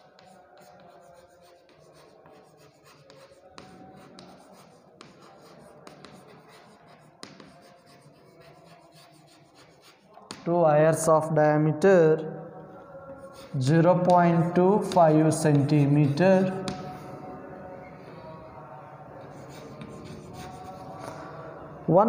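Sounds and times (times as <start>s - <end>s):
chalk scratching on blackboard: 0.0s - 10.5s, 13.1s - 17.1s, 19.2s - 21.2s
chalk tapping board: 0.0s - 10.5s, 13.2s - 17.0s, 19.3s - 21.0s.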